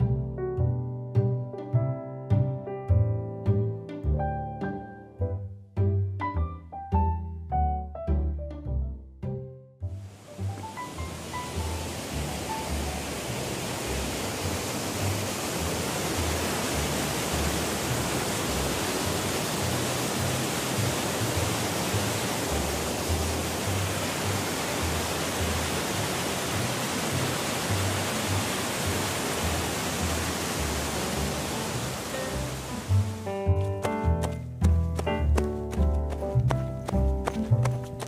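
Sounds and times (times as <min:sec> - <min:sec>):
background music: 0:00.0 - 0:38.0
waterfall rushing: 0:10.0 - 0:33.3.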